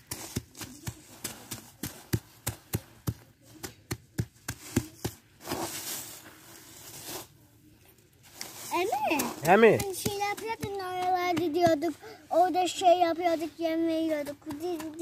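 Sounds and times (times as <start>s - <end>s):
hammer pounding salt sack: 0.0s - 5.8s, 8.8s - 11.9s.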